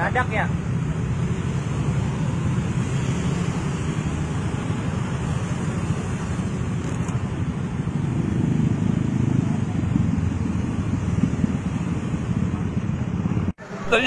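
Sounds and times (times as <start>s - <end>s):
motor scooters passing: 0.5s - 14.0s
wind buffeting microphone: 6.5s - 13.6s.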